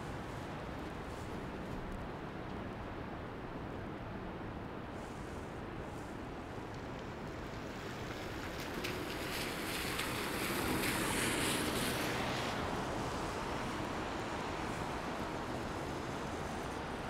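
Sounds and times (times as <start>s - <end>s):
city street noise: 0.0s - 17.0s
tyre hiss on wet street: 4.6s - 17.0s.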